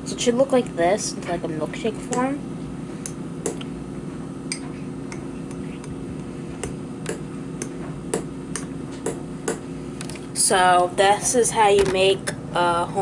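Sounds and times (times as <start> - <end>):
steady low hum: 0.0 - 13.0.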